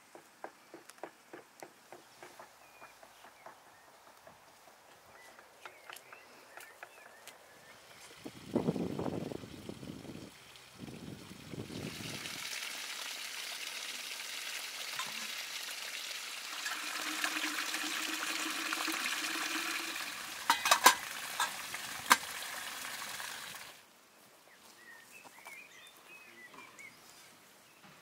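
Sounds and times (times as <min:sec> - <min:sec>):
water splashing over rocks: 0:16.5 - 0:23.8.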